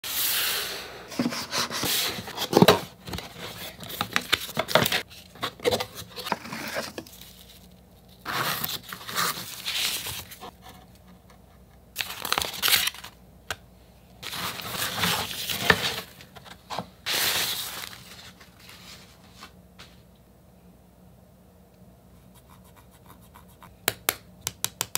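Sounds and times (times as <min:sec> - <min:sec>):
cardboard and wrapping rustling: 0:01.1 - 0:10.6, 0:14.2 - 0:20.0.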